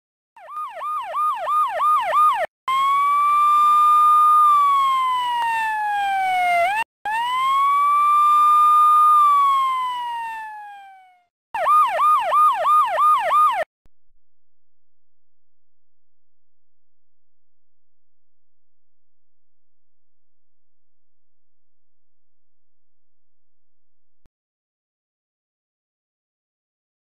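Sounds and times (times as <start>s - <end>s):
electronic police siren: 0.4s - 13.7s.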